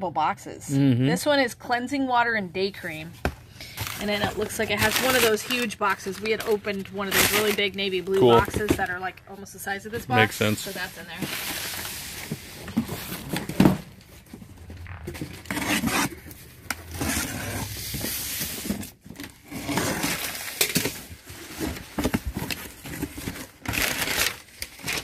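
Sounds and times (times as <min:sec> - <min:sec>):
cardboard flaps scraping: 0:10.1 - 0:24.3.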